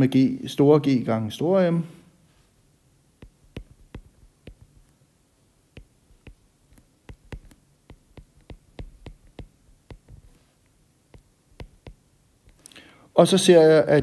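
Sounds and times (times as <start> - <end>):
stylus tapping on glass screen: 3.2 - 4.9, 5.7 - 10.4, 11.1 - 12.6.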